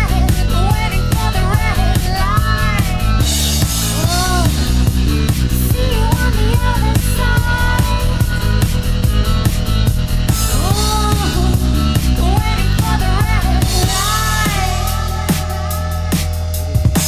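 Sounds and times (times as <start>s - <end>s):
fast drum beat: 0.0s - 17.0s.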